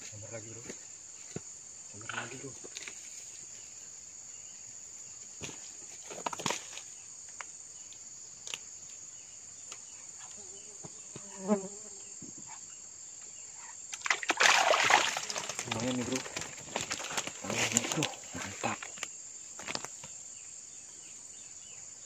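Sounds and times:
insects chirring: 0.0s - 22.0s
rustles and clicks: 15.3s - 20.2s.

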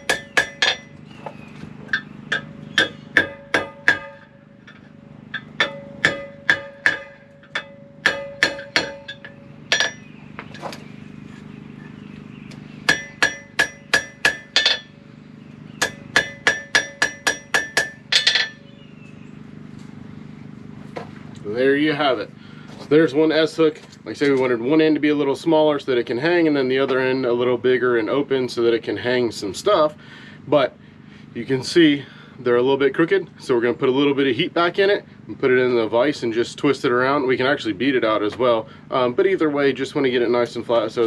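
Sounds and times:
hammer ringing on anvil: 0.0s - 1.0s, 1.9s - 10.1s, 12.9s - 15.0s, 15.8s - 18.7s.

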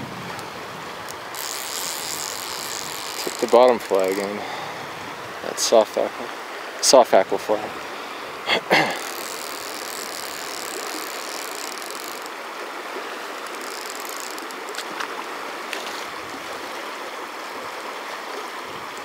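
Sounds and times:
river rushing over riffle: 0.0s - 19.0s
faint clicks: 0.3s - 4.4s, 9.0s - 12.4s, 13.3s - 15.1s.

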